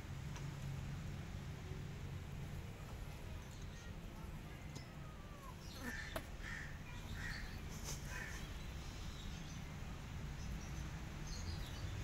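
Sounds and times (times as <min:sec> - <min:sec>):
low outdoor rumble: 0:00.0 - 0:12.0
crow cawing: 0:05.8 - 0:07.4.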